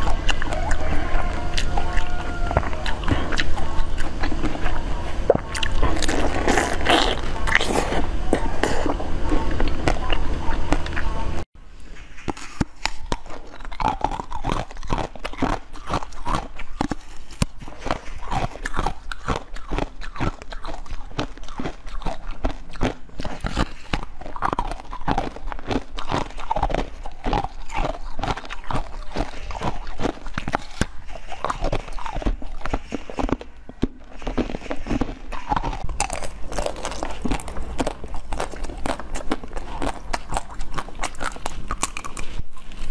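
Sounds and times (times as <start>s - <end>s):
chewing soft dessert: 0.0s - 42.9s
sharp bites of jelly candy: 12.2s - 42.3s.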